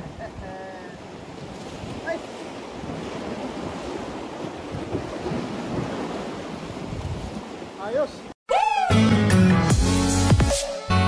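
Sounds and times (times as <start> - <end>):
wind buffeting microphone: 0.0 - 7.8
waves washing against concrete: 0.0 - 8.4.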